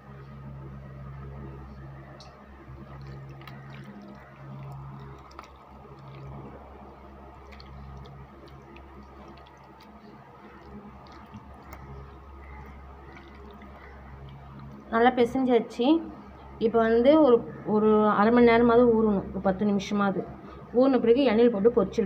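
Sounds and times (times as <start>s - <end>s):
steady low hum: 0.0s - 22.0s
hand squelching wet paste: 2.8s - 14.9s.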